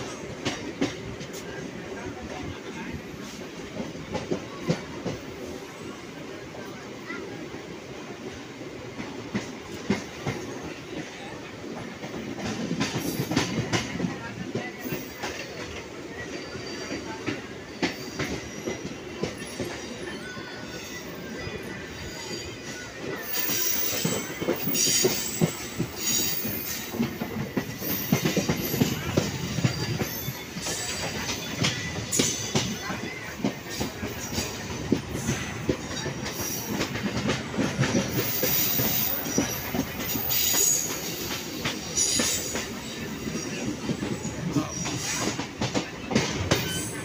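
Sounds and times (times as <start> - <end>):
train wheels clicking over rail joints: 0.0 - 2.5, 11.7 - 15.9, 23.0 - 47.0
train rumble: 0.0 - 47.0
high wheel squeal: 22.0 - 27.0, 46.5 - 47.0.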